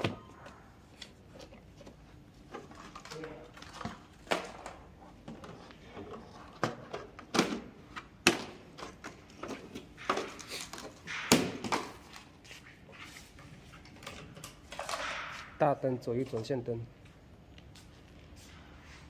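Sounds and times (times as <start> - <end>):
clunks and knocks of scooter parts: 1.4 - 12.0.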